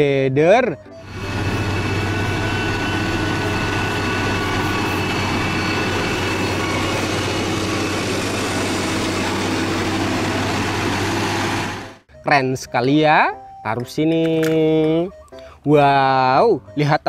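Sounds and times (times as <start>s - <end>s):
diesel engine running under load: 0.9s - 12.1s.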